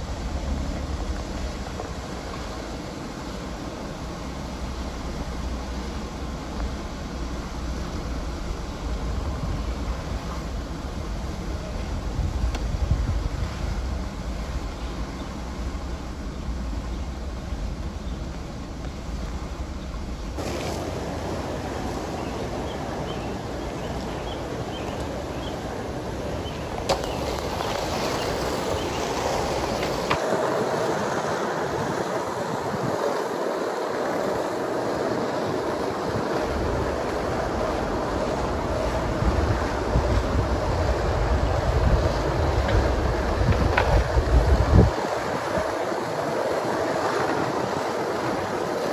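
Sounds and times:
skateboard wheels rolling on asphalt: 0:00.0 - 0:48.9
wind on microphone: 0:00.0 - 0:48.9.

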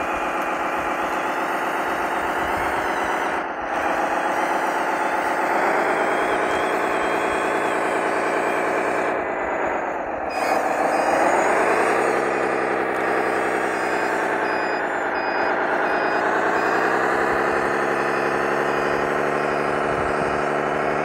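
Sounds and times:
rc bulldozer motor whining: 0:00.0 - 0:21.0
faint high pulsing beep: 0:04.4 - 0:21.0.

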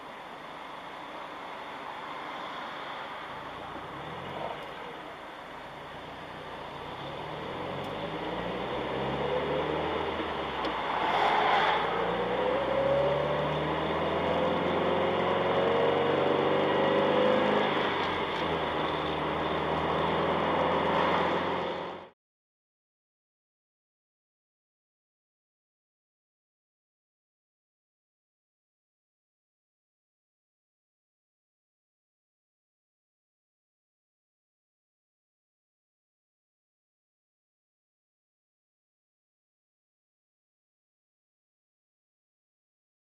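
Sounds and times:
car engine: 0:00.0 - 0:22.2
road noise: 0:00.0 - 0:22.2.

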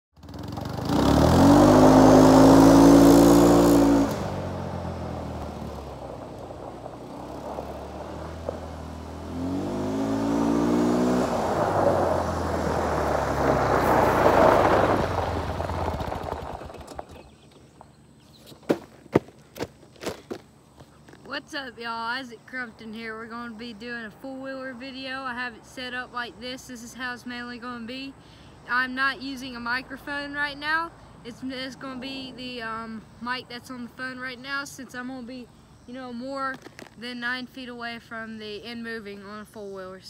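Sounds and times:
atv engine revving: 0:00.2 - 0:17.5
crunches on gravel: 0:13.7 - 0:21.4, 0:36.4 - 0:37.0.

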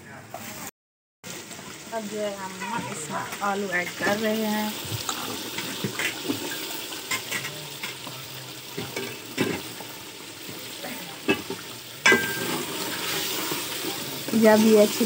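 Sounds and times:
food sizzling in a pot: 0:00.3 - 0:15.0
ladle knocking and scraping pot: 0:04.8 - 0:08.1, 0:08.7 - 0:09.9, 0:11.2 - 0:13.7.

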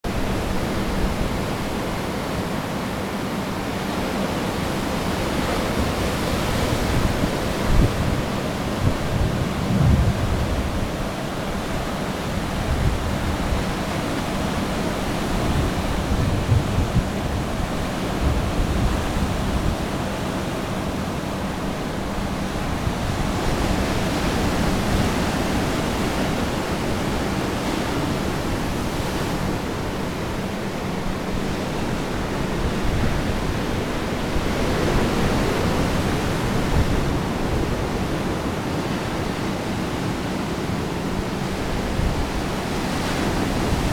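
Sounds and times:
ocean surf breaking: 0:00.1 - 0:43.9
wind buffeting microphone: 0:05.3 - 0:39.2.

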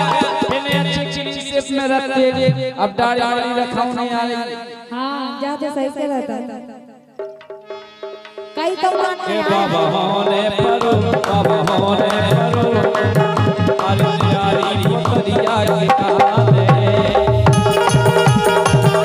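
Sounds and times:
sharp percussion strikes: 0:00.0 - 0:01.3, 0:10.5 - 0:19.0
hand drums fast beat: 0:00.0 - 0:01.4, 0:08.3 - 0:19.0
harmonium chord: 0:07.6 - 0:11.4.

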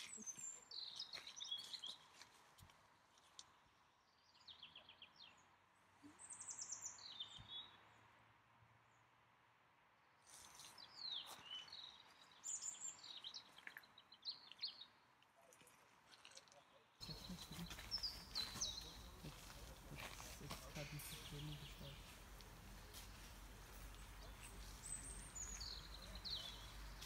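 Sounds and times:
songbirds trilling: 0:17.0 - 0:27.0.

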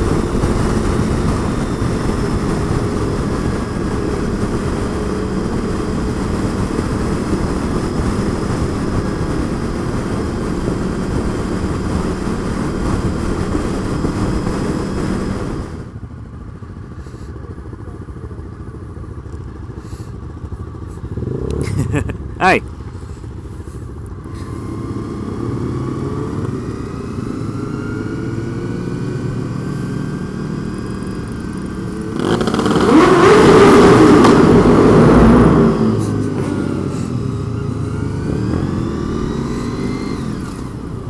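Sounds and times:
wind rushing over helmet camera: 0:00.0 - 0:16.0
motorcycle engine: 0:00.0 - 0:41.0.

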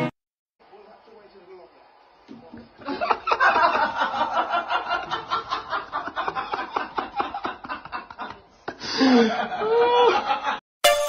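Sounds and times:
person laughing hard: 0:02.8 - 0:10.6.

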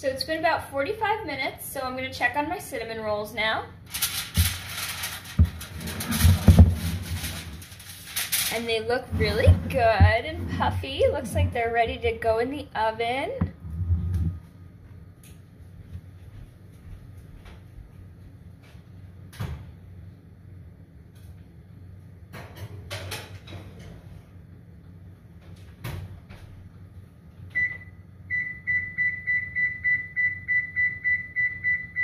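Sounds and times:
oven control panel beeping: 0:27.5 - 0:32.0.

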